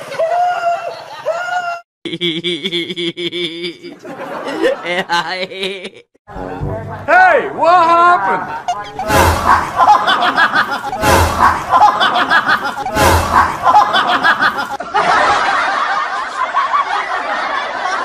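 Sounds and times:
person snickering: 2.1s - 6.1s, 8.7s - 14.8s.

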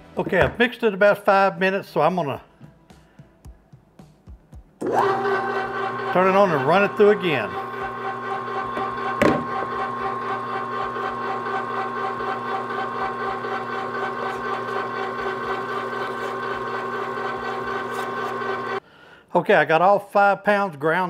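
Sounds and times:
electric meat grinder running: 4.8s - 18.8s.

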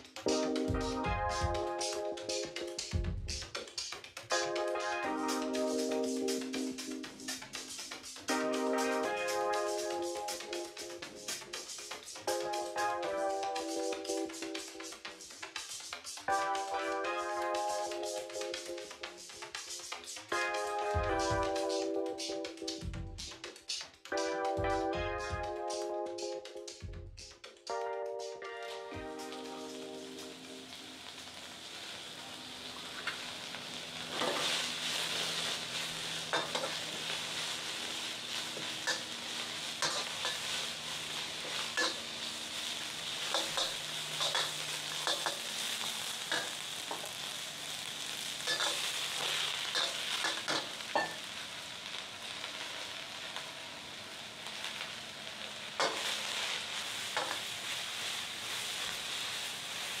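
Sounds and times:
food sizzling in a wok: 5.2s - 16.7s, 29.2s - 60.0s
gas burner roaring: 29.6s - 60.0s
metal spatula scraping a wok: 34.1s - 34.6s, 39.8s - 40.6s, 41.4s - 42.2s, 43.3s - 45.5s, 48.5s - 51.2s.

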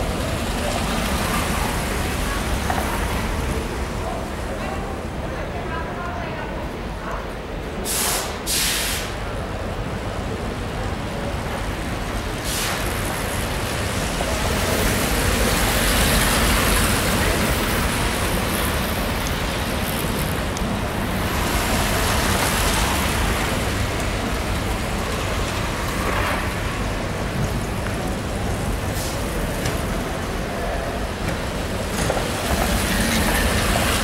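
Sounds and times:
short hisses: 7.9s - 9.2s.

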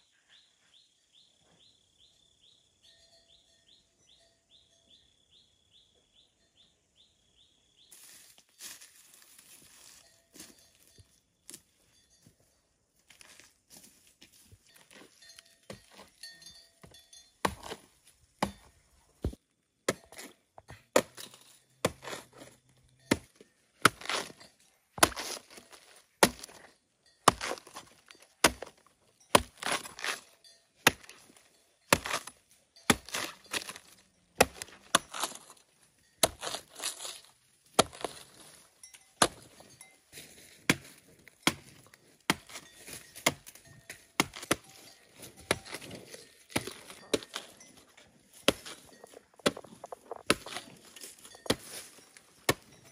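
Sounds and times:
knife chopping tree trunk: 17.4s - 24.4s, 25.0s - 31.3s, 31.9s - 35.6s, 36.2s - 37.2s, 37.8s - 38.5s, 39.2s - 39.6s, 40.7s - 47.6s, 48.4s - 52.8s.

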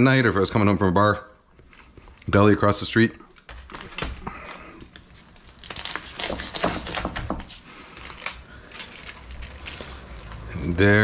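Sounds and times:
aluminium foil crinkling: 3.2s - 11.0s
knife sawing through sandwich: 5.9s - 7.7s.

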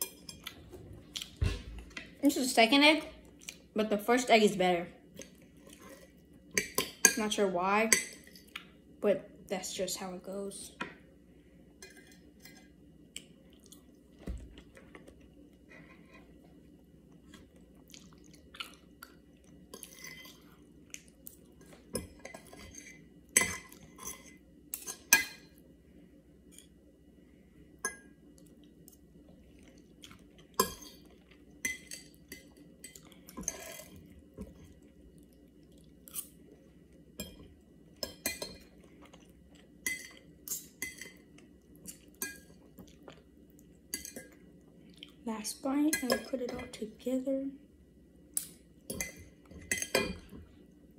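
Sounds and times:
quiet chewing: 3.2s - 3.6s, 13.1s - 16.4s, 17.1s - 21.8s, 28.4s - 37.0s, 38.7s - 45.2s.

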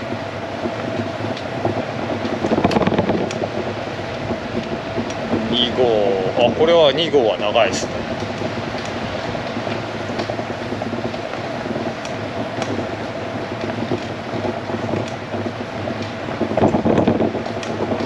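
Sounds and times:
bicycle tyres rolling on tarmac: 0.0s - 18.0s
wind on microphone: 0.0s - 18.0s
faint ticks: 8.2s - 18.0s.

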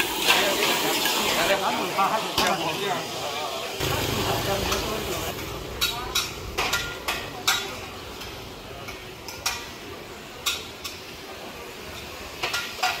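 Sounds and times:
metallic clanks of cookware: 4.7s - 11.2s, 11.9s - 13.0s.

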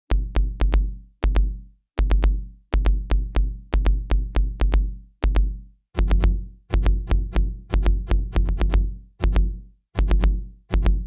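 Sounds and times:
electronic music with drum-machine beat: 0.1s - 11.0s.

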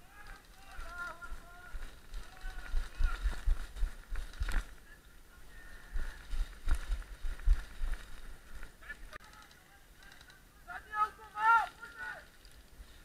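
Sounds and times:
running footsteps on forest floor: 0.0s - 9.5s.

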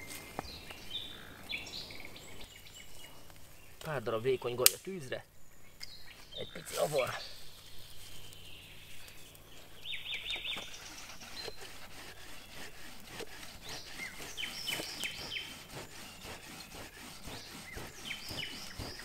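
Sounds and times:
small bird chirping: 5.3s - 12.8s, 13.6s - 19.0s.

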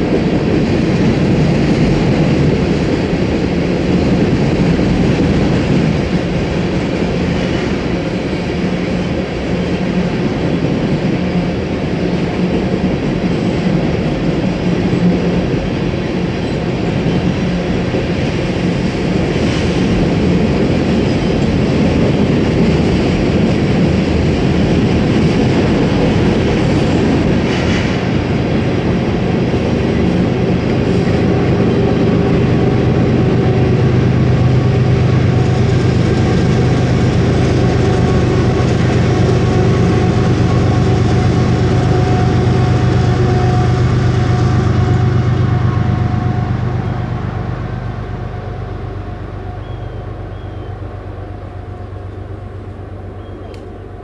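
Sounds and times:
train rumbling past: 0.0s - 54.0s
low engine hum: 28.1s - 54.0s.

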